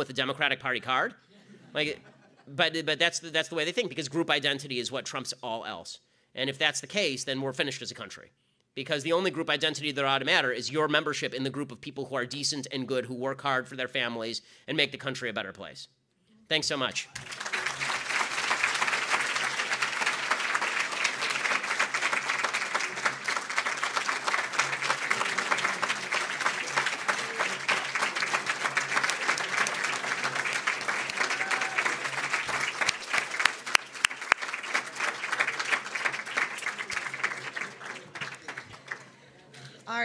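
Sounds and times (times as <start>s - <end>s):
audience applauding: 17.2s - 39.2s.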